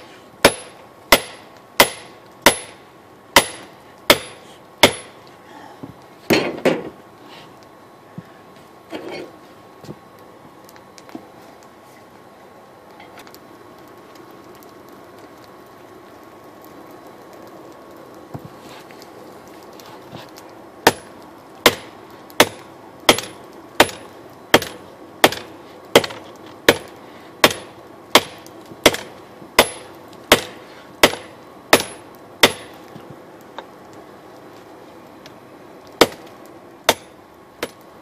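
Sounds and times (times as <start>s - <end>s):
hammer striking steel on anvil: 0.4s - 2.8s, 3.4s - 5.1s.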